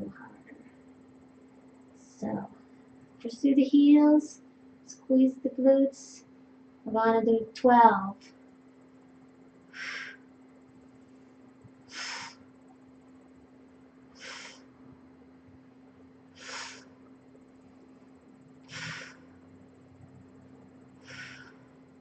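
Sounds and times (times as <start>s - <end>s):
woman breathing out forcefully: 9.7s - 10.3s, 11.9s - 12.4s, 14.2s - 14.7s, 16.4s - 17.0s, 18.7s - 19.4s, 21.0s - 21.8s.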